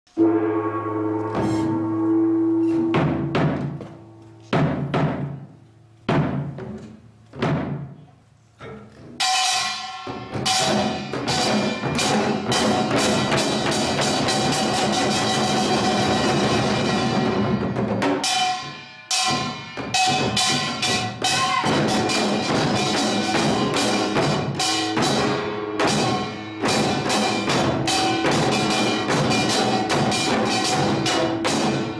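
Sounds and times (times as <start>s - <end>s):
percussion ensemble drumming: 1.2s - 5.4s, 9.2s - 31.9s.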